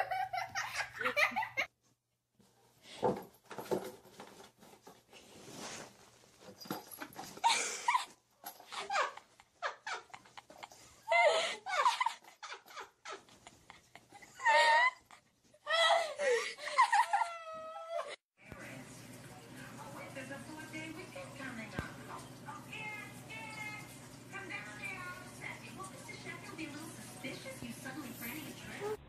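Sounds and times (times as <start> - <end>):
people laughing: 0.0 - 1.7, 7.4 - 18.2
knocks and rustles: 2.4 - 7.4.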